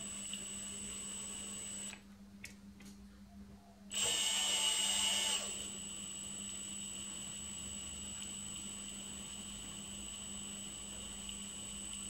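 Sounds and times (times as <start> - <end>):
cordless drill whining: 0.0 - 2.0, 3.9 - 7.3.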